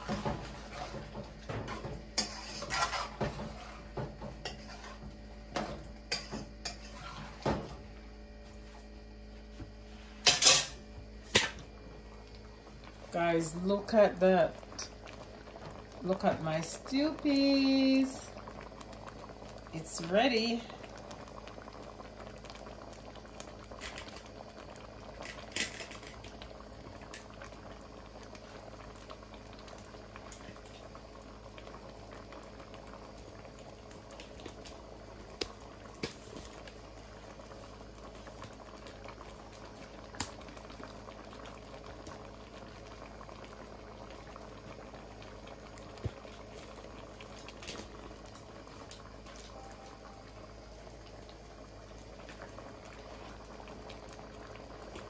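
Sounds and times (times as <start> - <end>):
pot of stew bubbling: 0.0 - 55.0.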